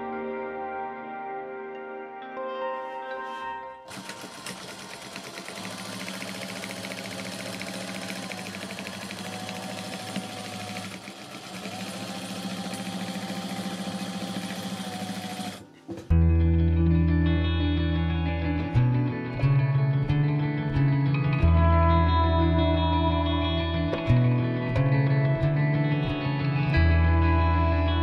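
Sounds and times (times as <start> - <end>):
soft music: 0.0 - 10.8, 12.3 - 28.0
sewing machine running: 3.9 - 16.1.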